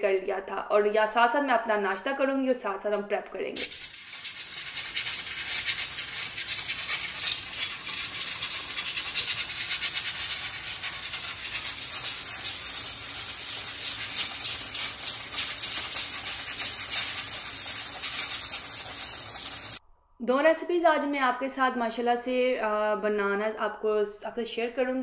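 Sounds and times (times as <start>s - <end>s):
pressure cooker hissing and rattling: 3.6s - 19.8s.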